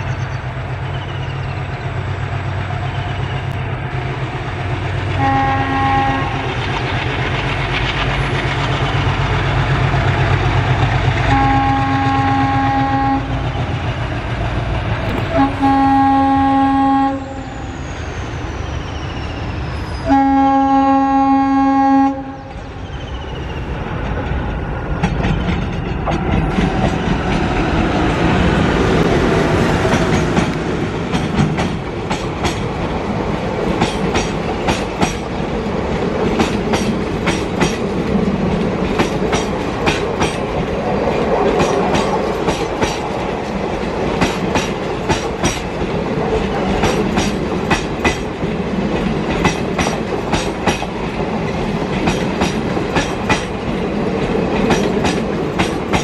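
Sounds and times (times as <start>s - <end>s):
diesel locomotive engine running: 0.0s - 56.0s
train wheels clacking over rail joints: 4.5s - 12.0s, 23.9s - 28.3s, 29.0s - 56.0s
multi-tone train horn: 5.2s - 6.6s, 11.3s - 13.5s, 15.1s - 17.6s, 20.0s - 22.7s.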